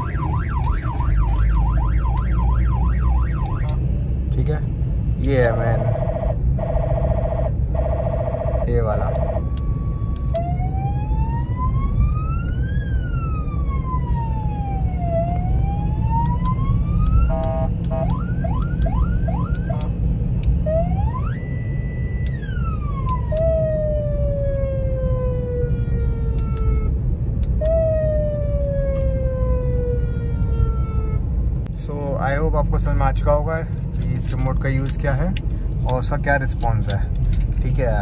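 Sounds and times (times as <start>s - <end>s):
siren wailing and whooping: 0.0s - 3.9s, 5.7s - 31.4s
road and engine rumble: 0.0s - 38.0s.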